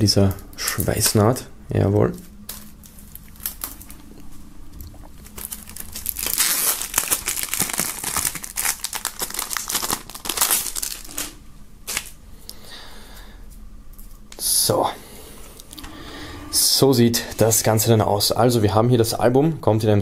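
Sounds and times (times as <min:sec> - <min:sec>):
plastic film crinkling and tearing: 0:02.5 - 0:04.2, 0:04.8 - 0:12.2.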